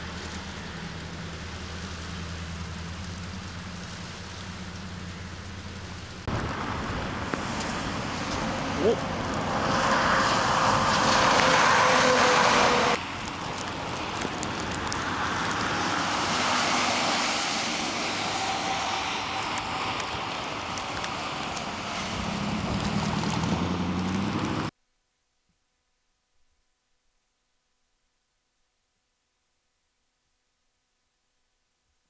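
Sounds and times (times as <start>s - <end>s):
low engine hum: 0.0s - 24.7s
road noise: 0.0s - 24.7s
wind: 0.0s - 32.0s
tyres hissing through slush: 7.3s - 24.7s.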